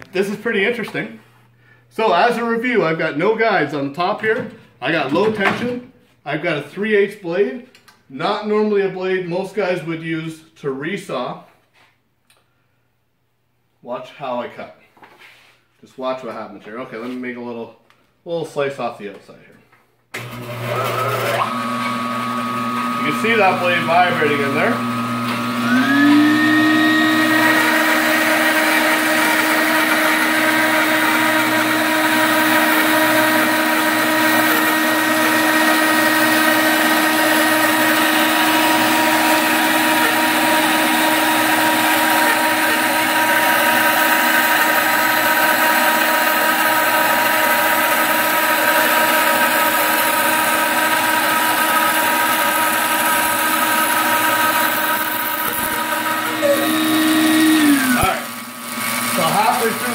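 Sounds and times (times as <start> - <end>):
bandsaw motor whine: 20.2 - 59.9
saw cutting through log: 20.2 - 59.9.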